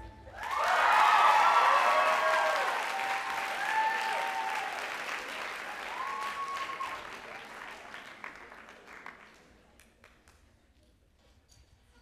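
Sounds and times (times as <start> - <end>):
whoops and shouts: 0.3 - 4.8, 5.8 - 7.1
audience applauding: 0.4 - 10.1.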